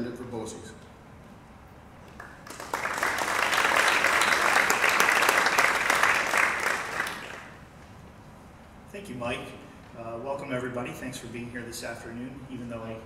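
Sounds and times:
audience applauding: 2.1 - 7.6.

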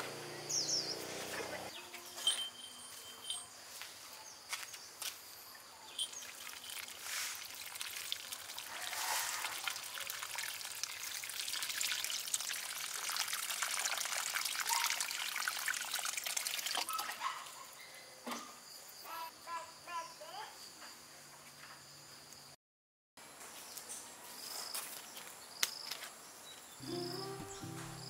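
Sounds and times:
water trickling and pouring: 6.0 - 17.2.

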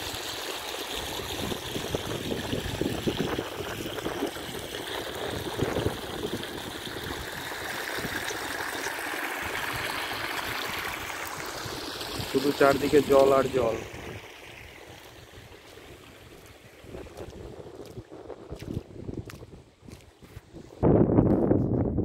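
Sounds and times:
floodwater trickling through a gap: 0.0 - 20.0.

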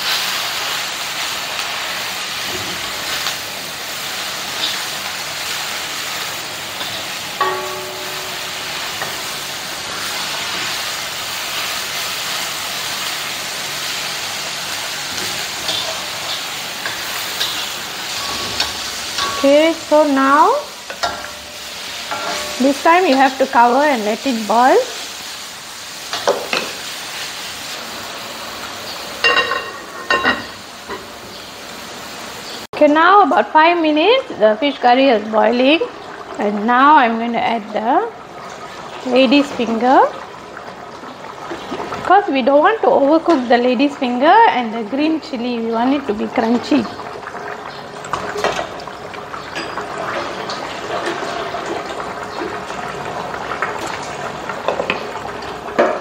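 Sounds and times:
lid clinking on rim: 20.9 - 22.6
curry bubbling in a pot: 34.8 - 56.0.

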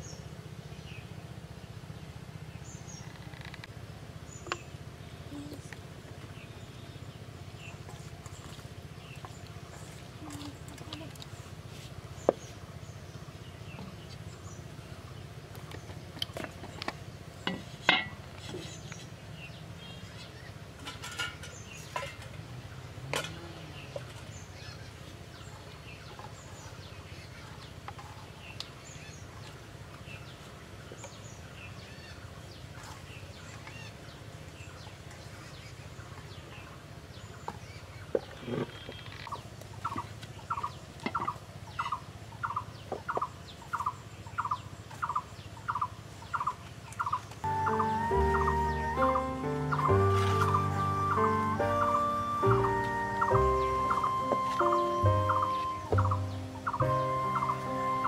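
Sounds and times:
small birds chirping: 0.0 - 58.0
fowl calling: 39.9 - 58.0.

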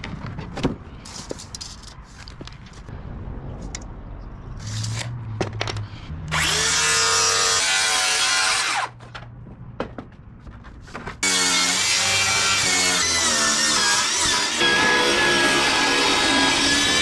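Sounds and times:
circular saw cutting plywood: 6.3 - 9.0, 11.2 - 17.0.

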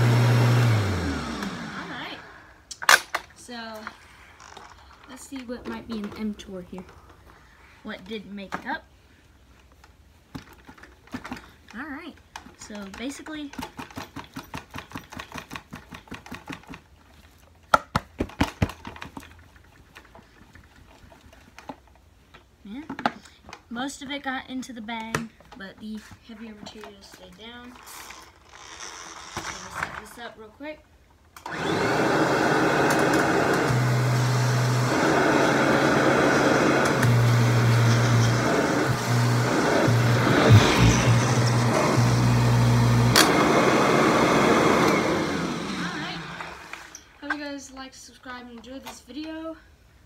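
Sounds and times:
vacuum cleaner motor running: 0.0 - 2.5, 31.4 - 47.0.

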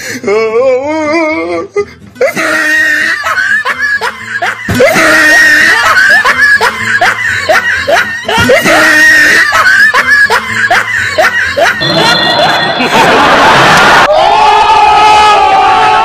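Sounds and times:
background music: 0.0 - 14.0
laughter sound effect: 2.2 - 14.1.

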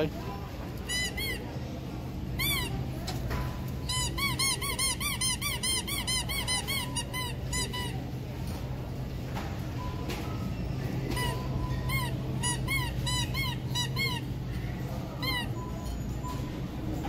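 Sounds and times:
squeaky pet toy squeaking: 0.8 - 1.6, 2.3 - 2.9, 3.8 - 8.0, 10.4 - 16.5.

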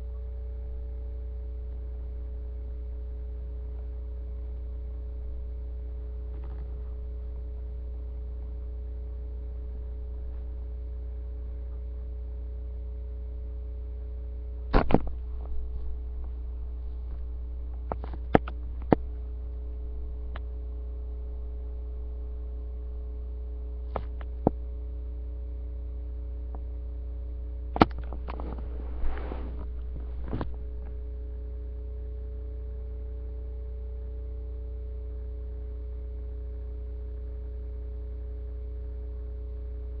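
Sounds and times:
electrical mains hum: 0.0 - 40.0
handling rustle: 27.9 - 30.9.

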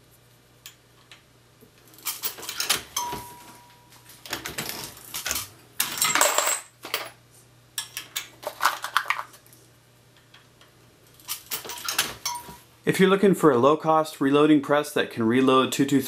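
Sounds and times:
rounds dropping into plastic bin: 4.3 - 7.2, 8.3 - 9.4.

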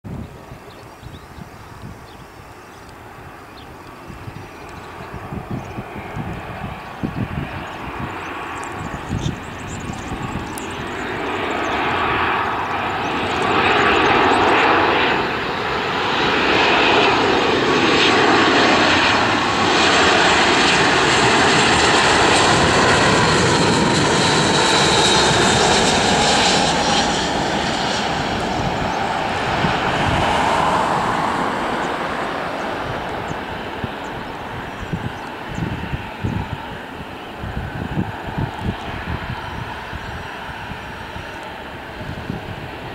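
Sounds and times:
jet engine whine: 0.1 - 42.9
jet engines roaring: 0.1 - 42.9.

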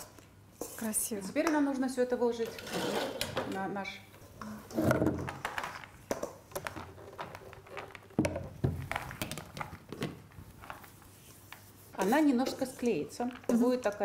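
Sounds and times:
metal spoon scraping steel bowl: 2.4 - 3.4.

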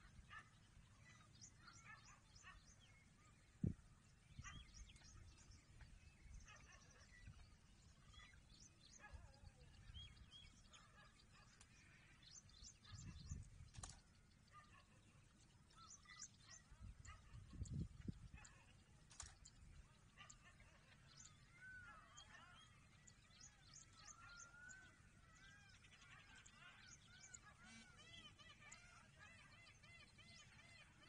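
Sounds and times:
small birds chirping: 0.0 - 31.0.

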